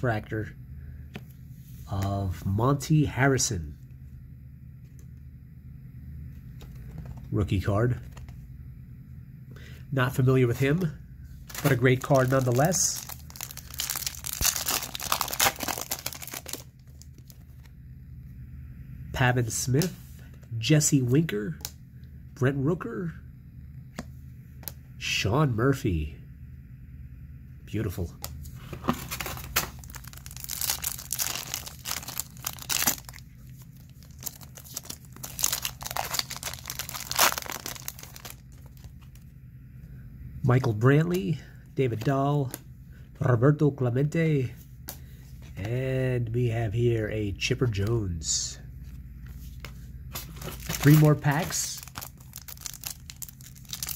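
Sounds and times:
foil wrapper tearing and crinkling: 11.5 - 17.3, 29.0 - 38.9, 50.4 - 53.9.

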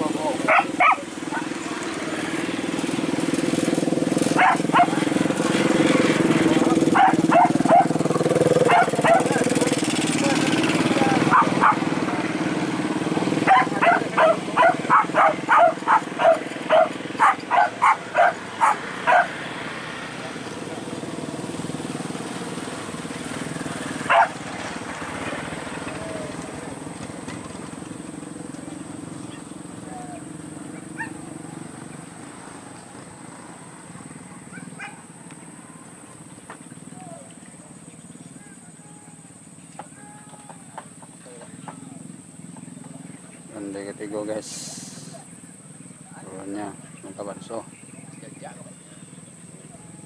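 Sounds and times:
motorcycle engine idling: 0.0 - 50.0
dog barking: 0.4 - 1.6, 4.4 - 5.2, 6.9 - 9.5, 11.2 - 11.9, 13.4 - 19.4, 24.1 - 24.4, 30.8 - 31.2, 34.5 - 35.1.

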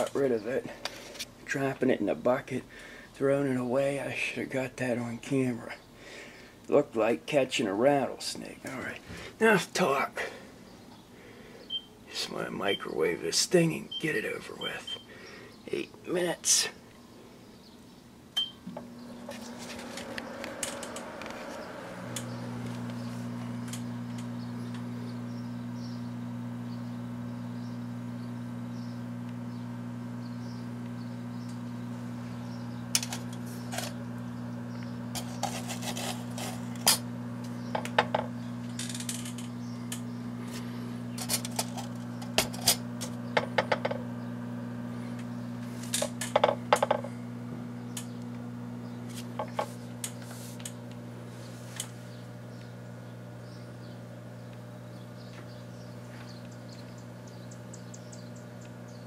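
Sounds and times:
microwave oven humming: 8.7 - 15.6, 18.2 - 59.0
microwave keypad beep: 11.7 - 11.9, 14.8 - 15.1, 18.4 - 18.6.

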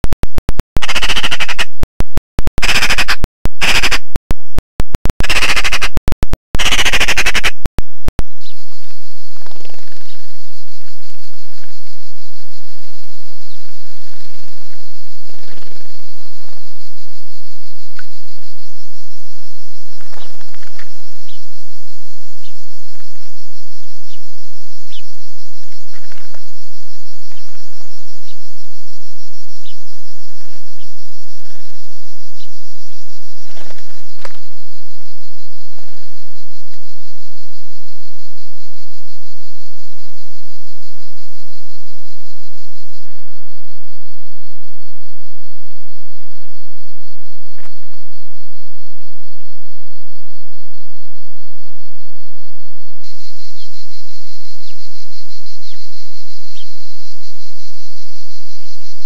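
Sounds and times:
cicadas buzzing: 0.8 - 1.6, 2.6 - 4.0, 5.2 - 5.9, 6.6 - 7.5, 19.4 - 21.7, 24.9 - 26.5, 27.2 - 28.6, 29.6 - 34.5, 53.2 - 56.9.

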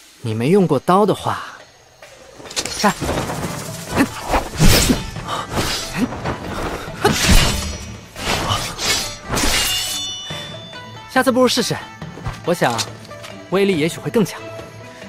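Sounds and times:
background music: 1.3 - 15.0
crashes and shattering hits: 2.4 - 10.0
ringing high tones: 9.5 - 11.2.

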